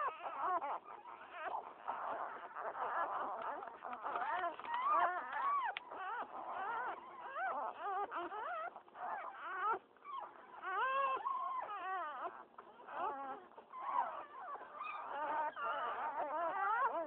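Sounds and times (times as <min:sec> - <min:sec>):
puppies whimpering and squealing: 0:00.0 - 0:17.0.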